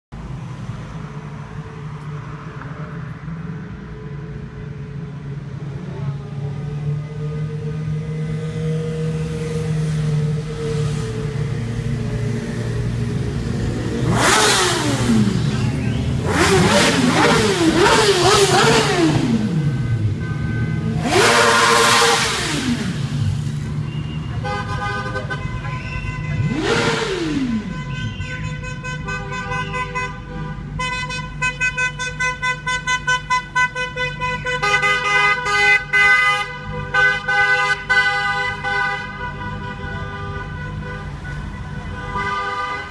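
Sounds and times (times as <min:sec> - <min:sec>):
motorcycles revving past: 0:06.8 - 0:19.7, 0:20.9 - 0:23.7, 0:26.4 - 0:27.7
car horns honking: 0:08.6 - 0:42.9.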